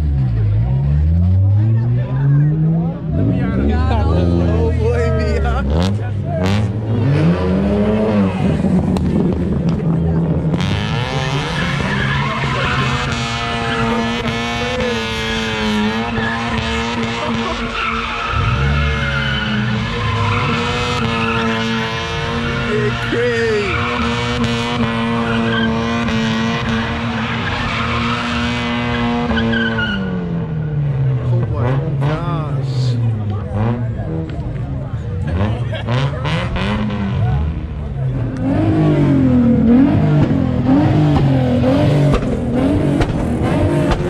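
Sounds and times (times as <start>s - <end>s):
car engine at high revs: 0.0s - 44.0s
tyres squealing and skidding: 10.6s - 30.8s
tyres squealing: 15.6s - 24.4s.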